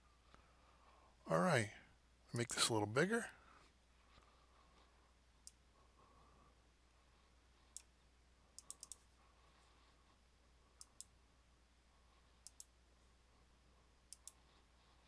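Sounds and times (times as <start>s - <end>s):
computer mouse clicking: 8.6s - 9.1s, 10.8s - 11.2s, 12.4s - 12.8s, 14.1s - 14.4s.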